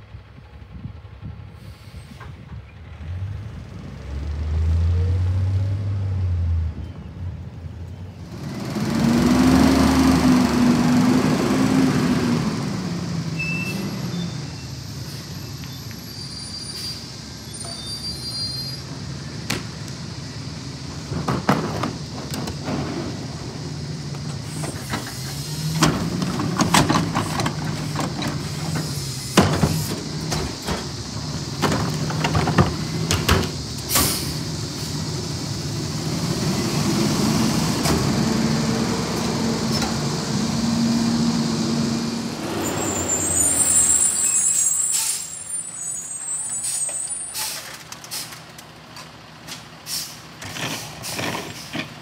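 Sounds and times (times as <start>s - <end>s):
garbage truck engine revving: 8.2s - 15.2s, 18.8s - 45.0s
knocks and clatters of trash cart: 21.0s - 23.3s, 24.1s - 34.2s.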